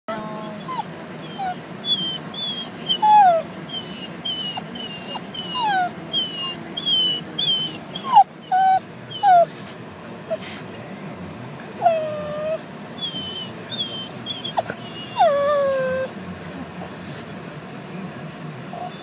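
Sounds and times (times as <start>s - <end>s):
dog whimpering: 0.1s - 9.7s, 11.8s - 17.0s, 18.7s - 19.0s
car hum: 0.1s - 19.0s.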